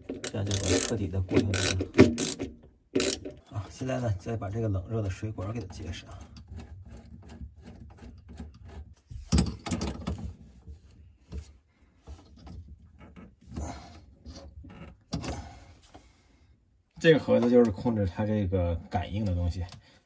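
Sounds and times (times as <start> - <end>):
metallic clicks and scrapes: 0.0 - 3.5.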